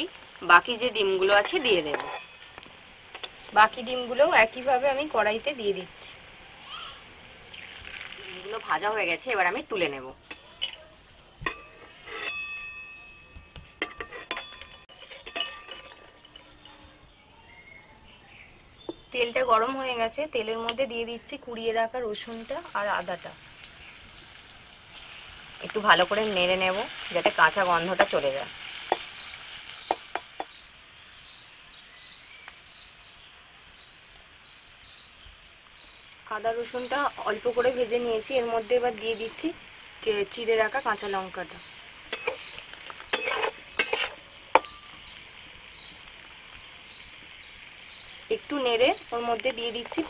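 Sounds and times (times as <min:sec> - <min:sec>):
frying in hot oil: 0:00.0 - 0:50.0
metal spatula clinking against wok: 0:10.2 - 0:10.8, 0:11.4 - 0:16.8, 0:42.1 - 0:45.0
metal spatula clicking on wok: 0:42.1 - 0:42.6.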